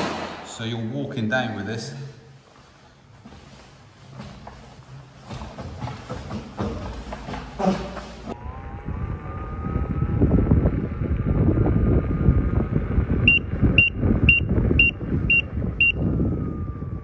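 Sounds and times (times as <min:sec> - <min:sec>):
tyre noise: 0:02.6 - 0:08.4
wind rumble on microphone: 0:08.3 - 0:17.0
electric motor whine: 0:08.4 - 0:14.2
unicycle warning beeps: 0:13.2 - 0:16.1.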